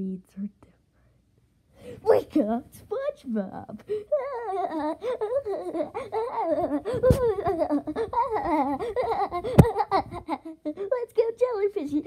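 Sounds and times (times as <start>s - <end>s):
person laughing in cartoon voice: 4.2s - 10.8s.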